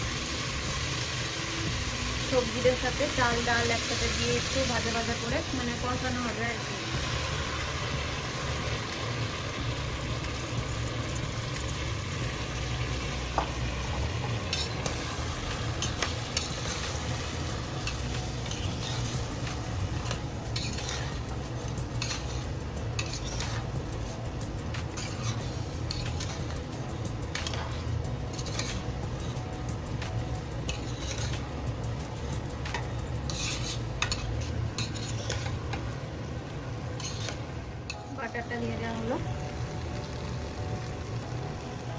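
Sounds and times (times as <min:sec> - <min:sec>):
food sizzling in a pot: 0:00.0 - 0:41.9
metal spatula scraping a pot: 0:14.4 - 0:23.8, 0:24.9 - 0:26.6, 0:27.3 - 0:29.4, 0:30.6 - 0:31.5, 0:32.7 - 0:35.8, 0:37.0 - 0:37.5.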